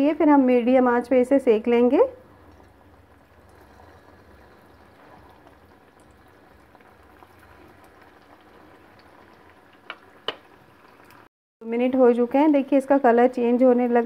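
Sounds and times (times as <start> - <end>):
deep-frying sizzle: 1.8 - 11.3.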